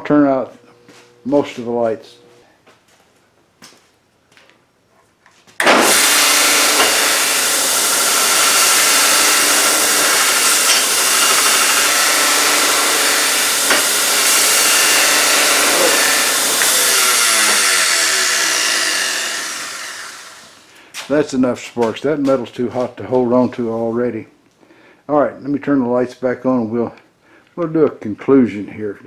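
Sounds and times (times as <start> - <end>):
belt grinder grinding steel: 0.0 - 2.4, 5.6 - 20.7
motor coasting down: 5.6 - 20.7.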